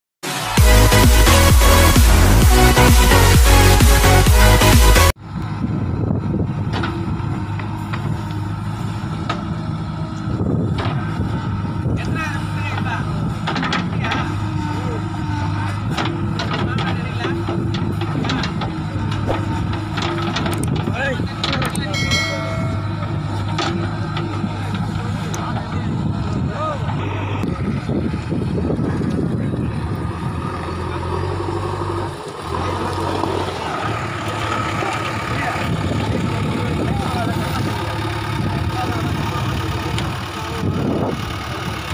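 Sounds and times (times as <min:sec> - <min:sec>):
diesel engine running: 0:00.2 - 0:41.9
backhoe arm clanks: 0:06.5 - 0:27.5.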